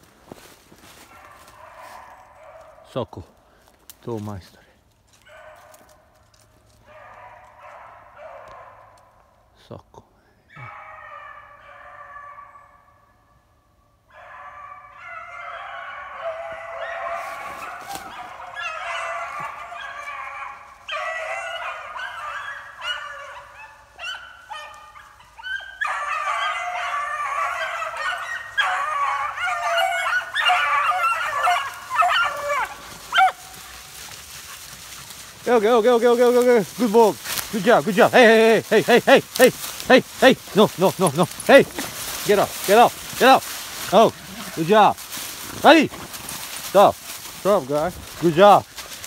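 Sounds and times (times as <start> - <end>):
pack of dogs baying: 0.3 - 2.9, 5.2 - 9.5, 10.5 - 13.1, 14.0 - 49.0.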